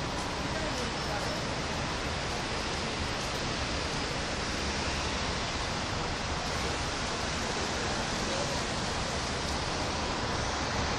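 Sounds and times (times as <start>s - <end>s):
rain falling on trees and street: 0.0s - 10.9s.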